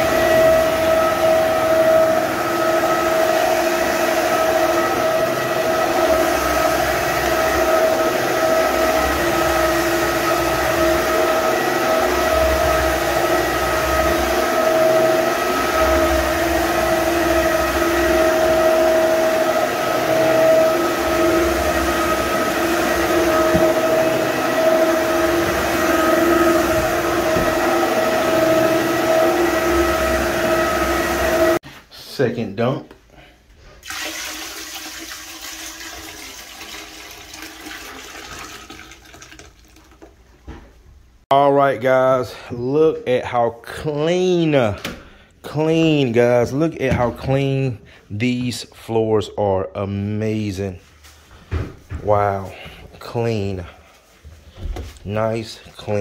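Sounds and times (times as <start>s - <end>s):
floor cleaner motor whine: 0.0s - 31.7s, 33.8s - 39.2s.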